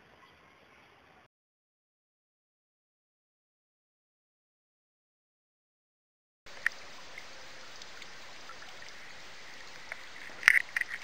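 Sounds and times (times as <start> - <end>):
sharp water drips: 6.5 - 11.0
water trickling and splashing: 6.5 - 11.0.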